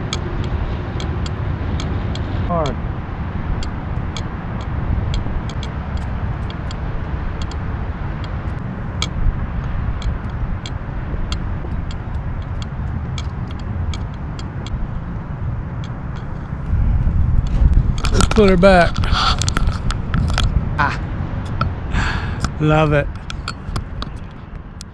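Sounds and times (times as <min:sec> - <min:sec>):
sharp small clicks: 0:00.0 - 0:02.8, 0:03.6 - 0:16.7, 0:17.3 - 0:20.6, 0:22.4 - 0:24.9
wind rumble on microphone: 0:00.0 - 0:24.9.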